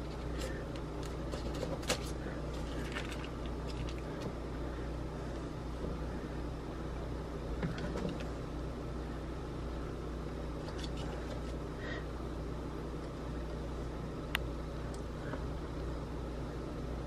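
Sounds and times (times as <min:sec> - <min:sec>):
hands rustling on paper: 0:00.0 - 0:04.3
low machine hum: 0:00.0 - 0:17.0.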